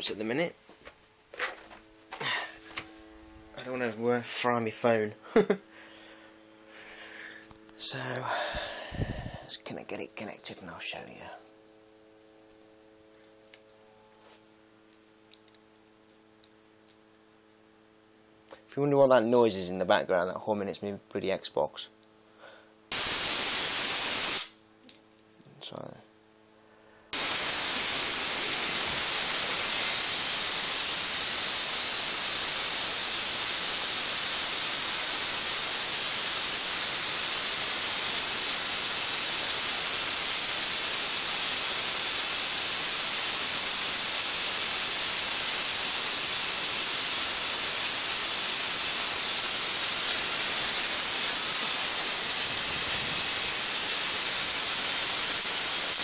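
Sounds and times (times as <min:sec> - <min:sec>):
tesla coil spark hiss: 0:22.9 - 0:24.6, 0:27.1 - 0:56.0.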